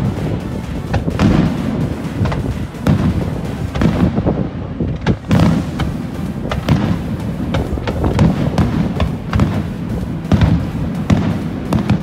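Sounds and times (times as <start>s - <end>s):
continuous low rumble: 0.0s - 12.0s
fireworks bangs and crackles: 0.0s - 12.0s.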